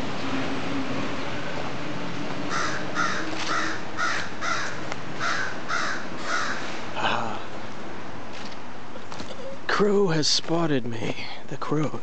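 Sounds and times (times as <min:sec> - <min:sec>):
crow cawing: 0:02.5 - 0:06.8.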